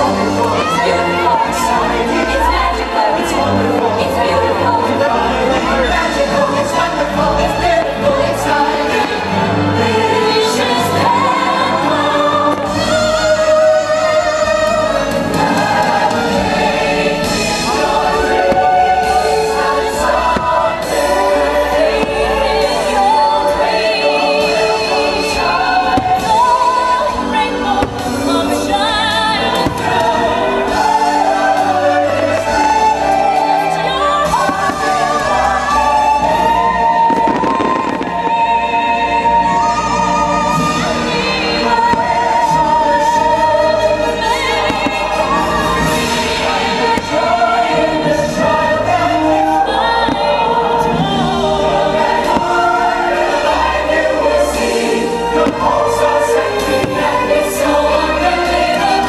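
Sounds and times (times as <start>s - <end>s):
fireworks bursting: 0.0s - 59.0s
orchestral music with choir: 0.0s - 59.0s.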